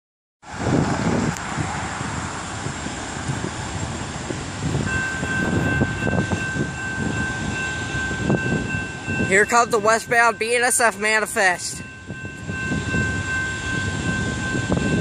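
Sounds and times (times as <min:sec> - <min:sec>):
railroad crossing bell ringing: 0:03.8 - 0:15.0.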